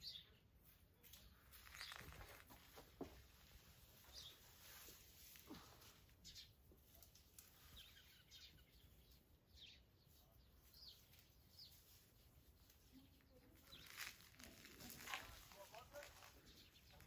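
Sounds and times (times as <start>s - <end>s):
faint bird chirps: 4.0s - 12.0s.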